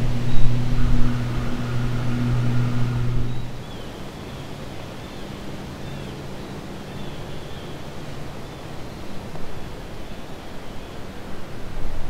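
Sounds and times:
wind on microphone: 0:00.0 - 0:03.7
steady low hum: 0:00.0 - 0:04.0.

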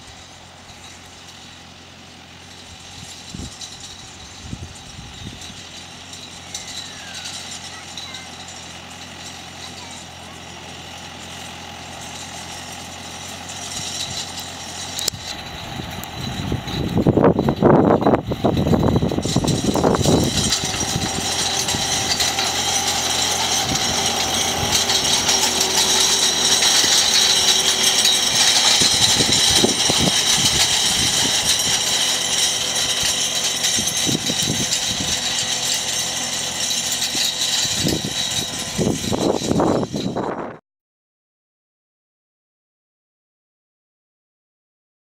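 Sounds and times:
harrow hissing and rattling: 0:00.0 - 0:40.4
tractor diesel engine running: 0:00.0 - 0:40.6.

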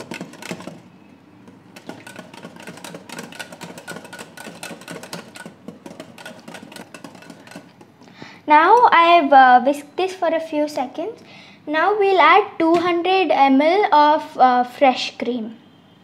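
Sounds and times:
whisk clicking on glass bowl: 0:00.0 - 0:08.0.

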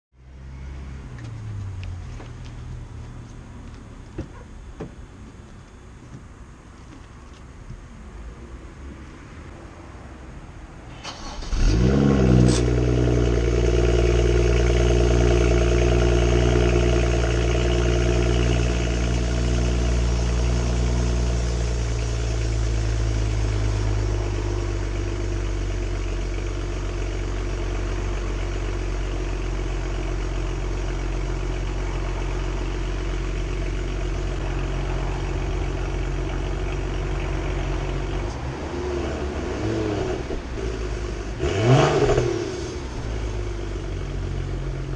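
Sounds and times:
engine cranking: 0:11.0 - 0:11.7
car engine idling: 0:11.0 - 0:44.9.

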